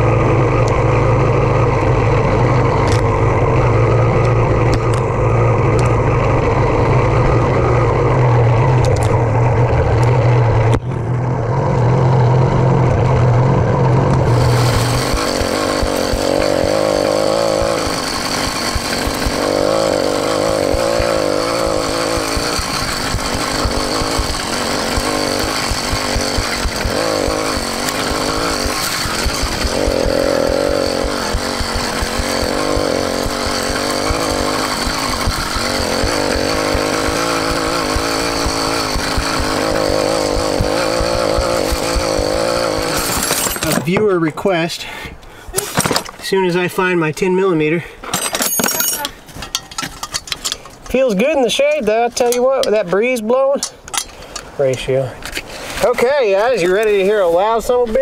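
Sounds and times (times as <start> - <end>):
two-stroke engine revving: 0.0 - 44.0.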